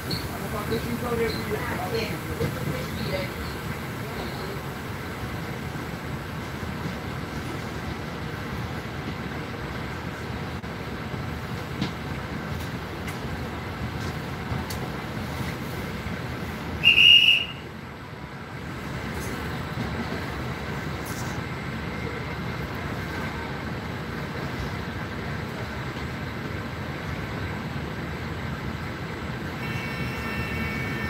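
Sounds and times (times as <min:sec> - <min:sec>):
train rumble and hum: 0:00.0 - 0:31.0
high whistle blast: 0:16.8 - 0:17.7.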